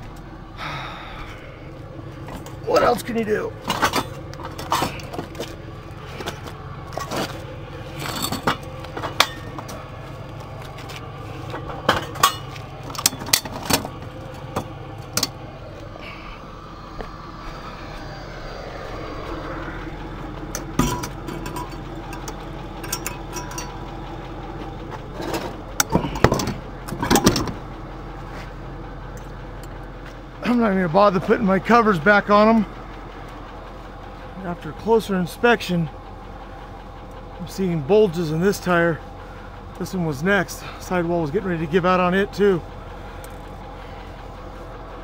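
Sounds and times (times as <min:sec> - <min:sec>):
truck engine idling: 0:00.0 - 0:45.0
metallic clanks and knocks: 0:03.6 - 0:05.6, 0:06.2 - 0:09.9, 0:11.4 - 0:15.4, 0:20.5 - 0:27.6.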